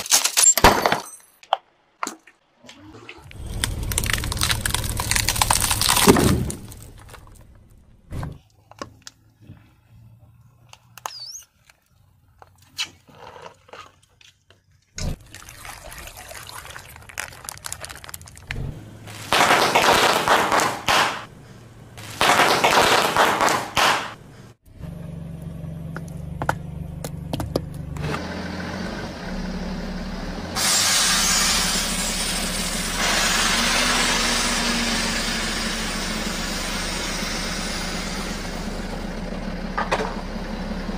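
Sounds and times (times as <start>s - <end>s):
car engine running: 3.2s - 8.4s, 18.0s - 22.2s, 23.1s - 30.6s, 31.5s - 40.9s
snacks crunching under tyre: 3.3s - 7.7s, 16.8s - 21.3s
plastic packets crackling: 3.4s - 7.4s, 15.3s - 18.5s.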